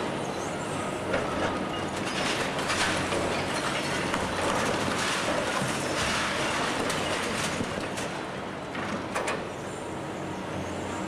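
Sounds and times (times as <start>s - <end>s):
falling rubble clatter: 1.2s - 9.3s
hydraulic crusher crunching concrete: 1.2s - 9.4s.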